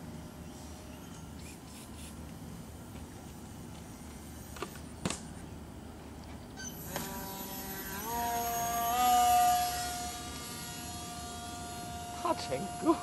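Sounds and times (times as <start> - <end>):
model plane motor drone: 6.5 - 13.0.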